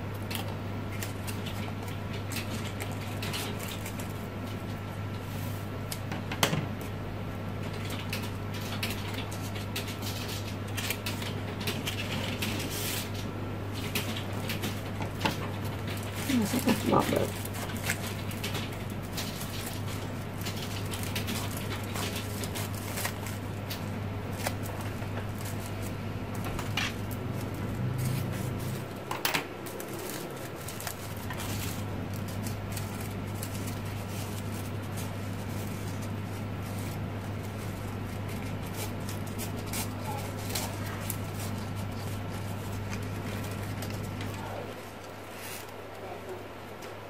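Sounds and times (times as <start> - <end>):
crepe paper rustling and crinkling: 0.0 - 47.0
steady low hum: 0.0 - 47.0
scissors cutting paper: 13.8 - 45.8.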